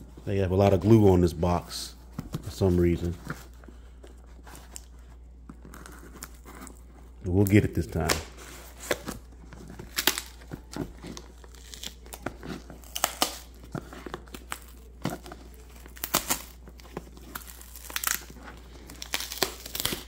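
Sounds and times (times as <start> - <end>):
packing tape crinkling and tearing: 4.5 - 20.0.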